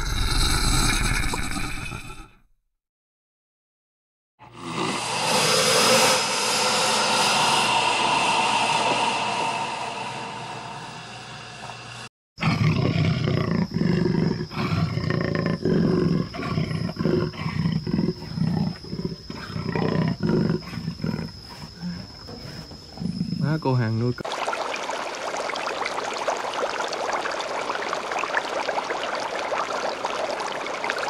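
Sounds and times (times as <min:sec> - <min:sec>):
large animal roaring: 0:04.4 - 0:11.8, 0:12.4 - 0:23.4
steady high tone: 0:05.0 - 0:12.1.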